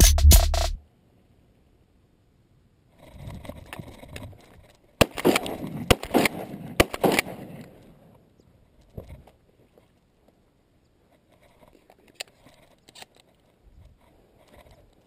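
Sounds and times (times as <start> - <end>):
shotgun shots: 5.0 - 7.6.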